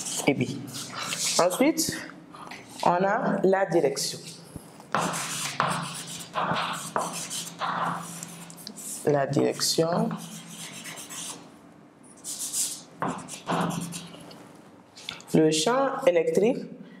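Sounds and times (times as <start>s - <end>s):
chalk scratching on blackboard: 0.0s - 1.6s, 4.9s - 11.5s, 12.2s - 14.2s.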